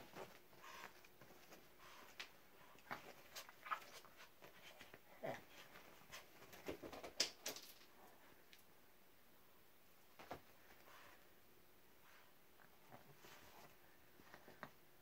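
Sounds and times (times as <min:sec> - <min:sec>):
paws tapping and rustling: 0:00.0 - 0:07.3.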